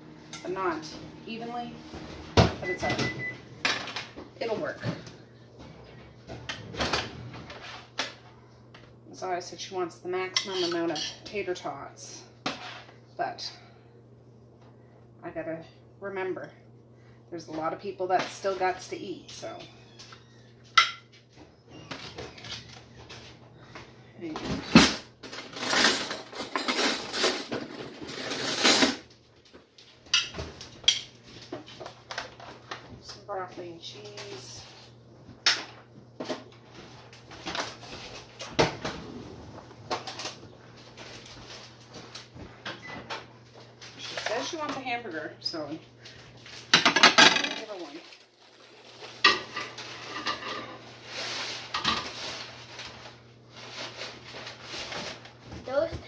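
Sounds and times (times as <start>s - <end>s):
low steady hum: 0.0s - 56.0s
utensil scraping and clinking dishes: 10.3s - 11.4s, 49.2s - 50.9s
dishes and utensils clattering: 10.4s - 11.3s, 24.5s - 29.1s, 46.7s - 47.9s, 49.2s - 50.9s.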